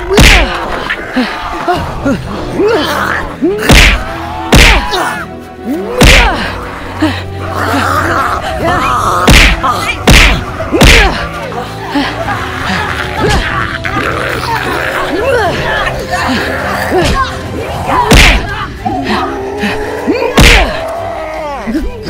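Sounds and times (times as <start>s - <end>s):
background music: 0.0s - 22.0s
voices: 0.0s - 22.0s
heavy thuds and whacks: 3.7s - 4.9s, 9.3s - 11.1s, 18.1s - 18.5s, 20.4s - 20.7s.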